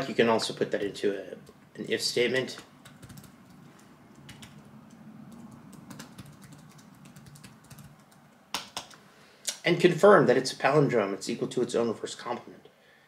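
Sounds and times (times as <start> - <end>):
laptop keyboard typing: 2.6 - 9.0.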